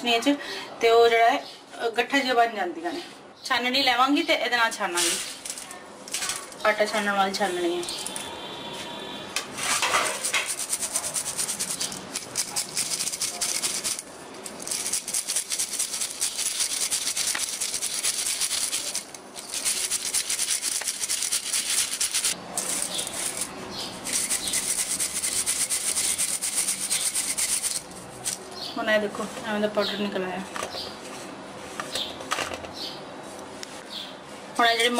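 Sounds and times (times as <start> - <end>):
sieve rattling: 9.7 - 28.4.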